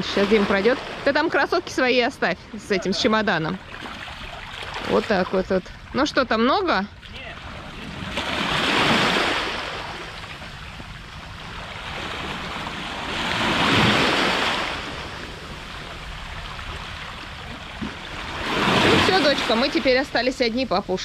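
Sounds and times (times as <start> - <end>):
waves washing against rocky shore: 7.2 - 21.0.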